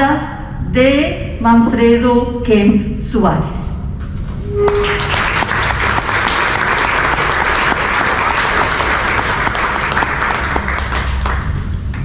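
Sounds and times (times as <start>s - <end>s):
audience applauding: 4.7s - 12.0s.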